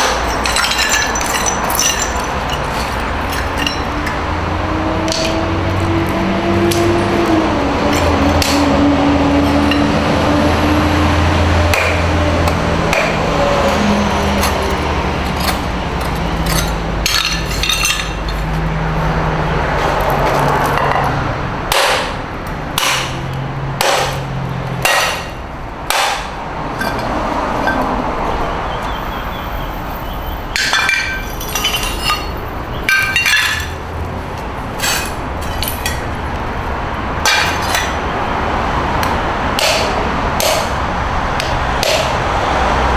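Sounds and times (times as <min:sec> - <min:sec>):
hammer breaking porcelain: 0:00.0 - 0:03.9, 0:23.8 - 0:24.2, 0:24.9 - 0:26.3, 0:32.9 - 0:33.8, 0:37.3 - 0:37.9, 0:39.6 - 0:40.7
clinking shards: 0:00.0 - 0:04.2, 0:14.4 - 0:18.6, 0:30.5 - 0:33.9, 0:34.7 - 0:36.1, 0:37.2 - 0:38.0.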